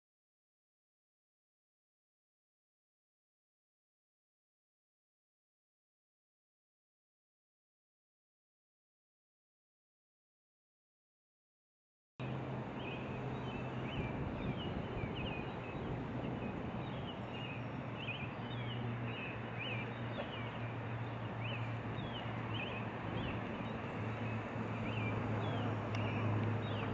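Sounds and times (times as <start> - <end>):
rushing background noise: 12.2 - 26.9
small birds chirping: 12.2 - 26.9.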